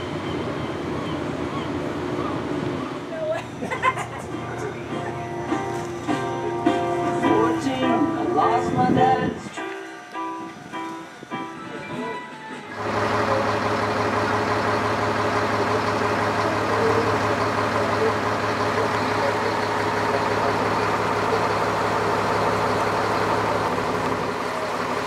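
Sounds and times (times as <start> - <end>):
boat engine humming: 0.0 - 25.0
water wash noise: 12.7 - 25.0.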